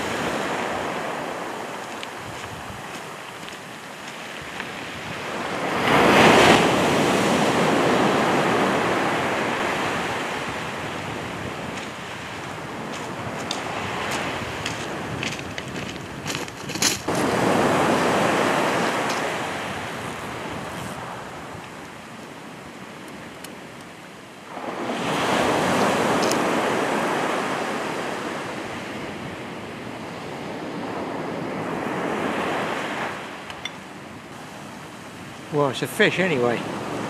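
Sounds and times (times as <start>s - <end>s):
waves breaking on shingle: 0.0s - 7.8s, 11.5s - 20.0s.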